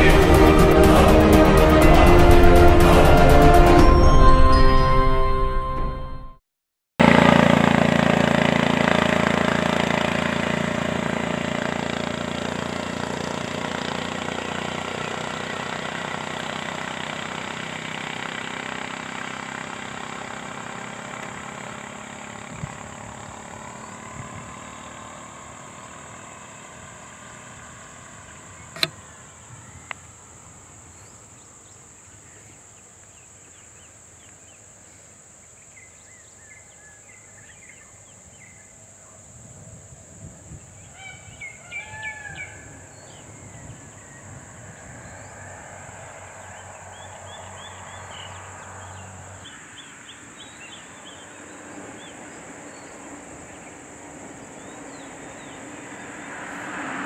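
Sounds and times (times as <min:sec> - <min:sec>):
motorcycle engine riding away: 0:00.0 - 0:02.8, 0:07.0 - 0:30.6, 0:39.6 - 0:57.0
high-pitched drone: 0:00.0 - 0:06.4
small engine revving: 0:07.0 - 0:29.2
sharp clicks: 0:28.8 - 0:29.0.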